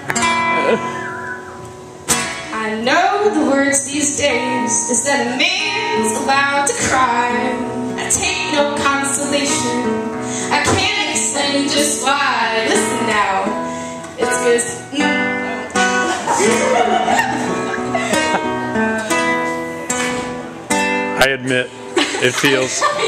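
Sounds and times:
strummed acoustic guitar: 0.0 - 23.0
women singing: 2.6 - 13.6, 14.2 - 16.4.

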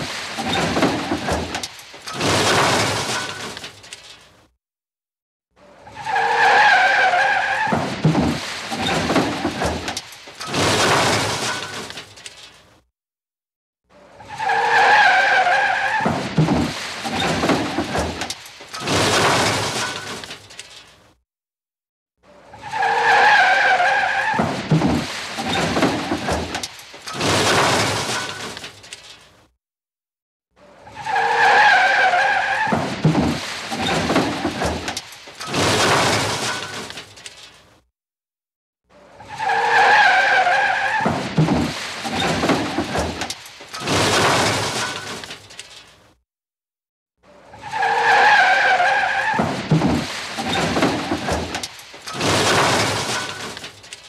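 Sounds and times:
crash with shattering glass: 0.0 - 4.4, 7.6 - 12.8, 16.0 - 21.1, 24.5 - 29.4, 32.6 - 37.8, 40.9 - 46.1, 49.4 - 54.0
car tyres screeching: 5.6 - 9.9, 14.0 - 20.2, 22.5 - 28.6, 30.7 - 34.8, 39.0 - 43.2, 47.5 - 53.6.

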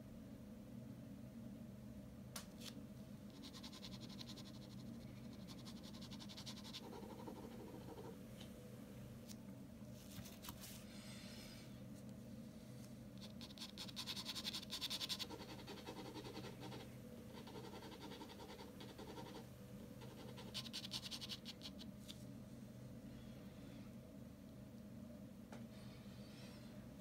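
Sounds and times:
pen scratching on paper: 13.2 - 19.4.

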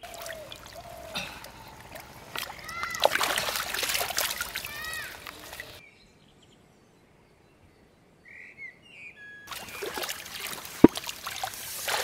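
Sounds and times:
birds chirping: 0.0 - 3.0
water splashing and sloshing: 0.0 - 5.8, 9.5 - 12.0.

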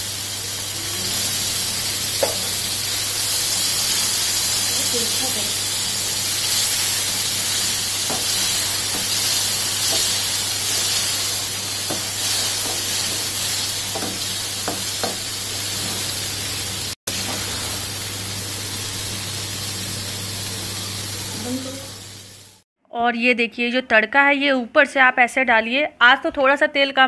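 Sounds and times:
food sizzling in a pan: 0.0 - 22.6.

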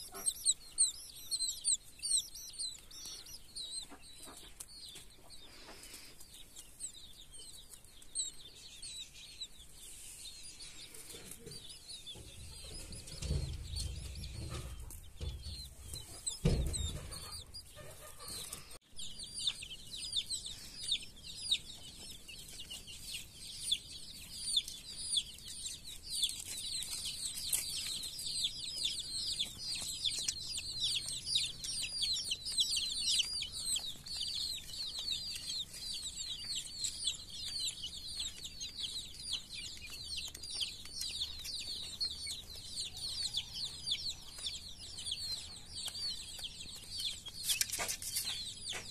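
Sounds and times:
chicks peeping: 0.0 - 48.9
thump: 16.4 - 17.3.

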